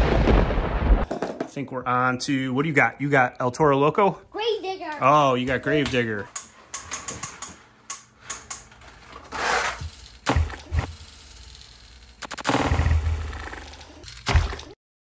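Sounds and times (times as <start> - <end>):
toy truck rushing down plastic track: 8.3 - 12.1.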